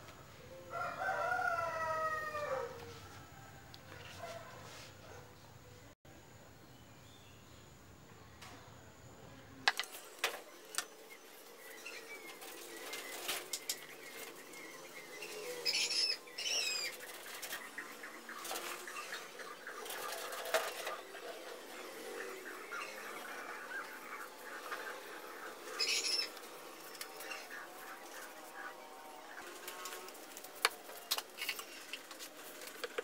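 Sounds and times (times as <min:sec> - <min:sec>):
birds chirping: 0:09.4 - 0:33.0.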